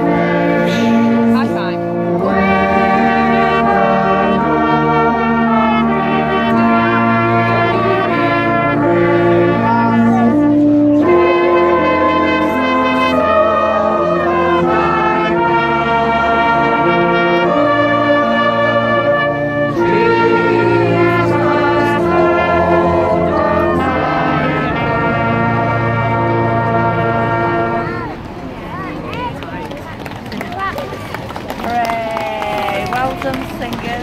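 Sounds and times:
brass band playing: 0.0 - 28.6
choir singing: 2.0 - 28.0.

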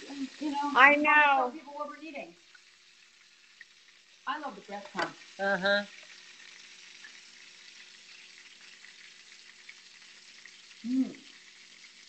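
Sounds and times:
food sizzling in a frying pan: 0.0 - 12.0
person making vocal sound: 10.8 - 11.3.

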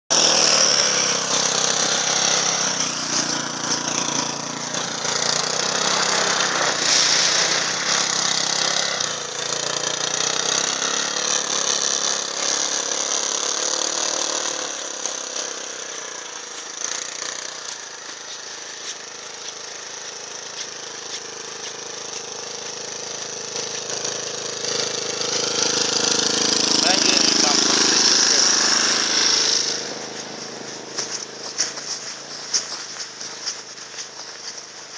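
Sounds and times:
small motorcycle engine revving: 0.1 - 34.9.

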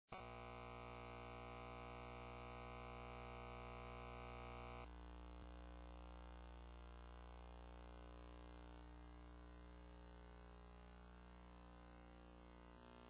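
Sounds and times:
electrical hum and buzz: 0.1 - 13.0.

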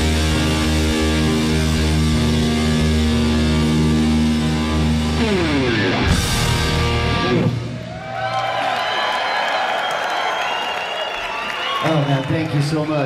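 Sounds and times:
rock band sustained chord: 0.0 - 8.2.

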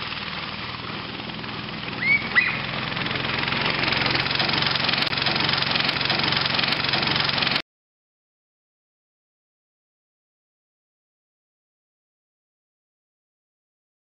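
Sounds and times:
small engine running: 0.0 - 7.6
short high rising chirps: 2.0 - 2.8.

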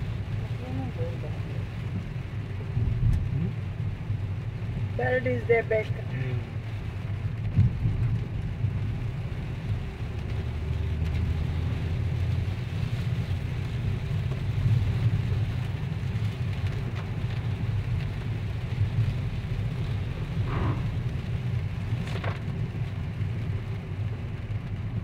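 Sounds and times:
car rumbling on wet road: 0.0 - 25.0
rain and tyre spray hiss: 0.0 - 25.0.

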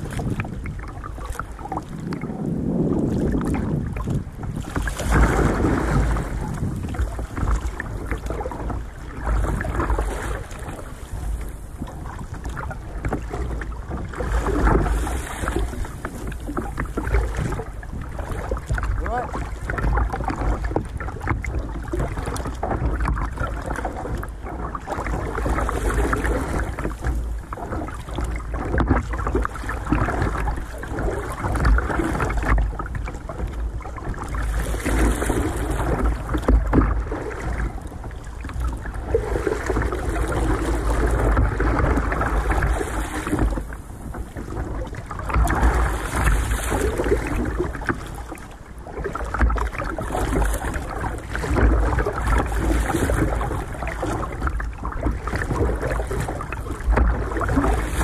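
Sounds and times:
water lapping against kayak hull: 0.0 - 58.0
wind rumble on microphone: 0.0 - 58.0.

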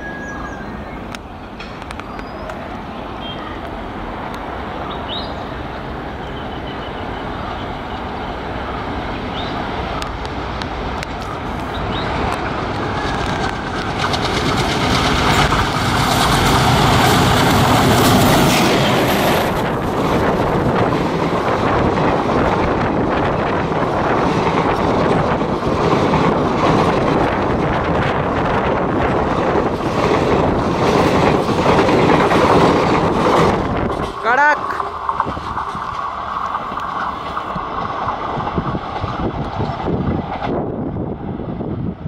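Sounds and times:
diesel locomotive engine: 0.0 - 42.0
train wheels clattering: 9.9 - 40.7.

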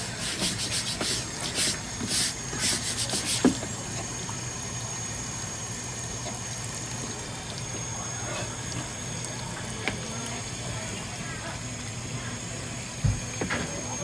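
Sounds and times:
tap water running into sink: 0.0 - 12.1, 12.7 - 14.0.

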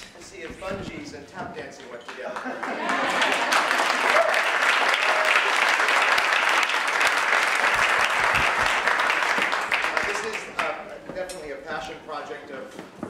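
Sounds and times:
audience applauding: 2.0 - 10.8.

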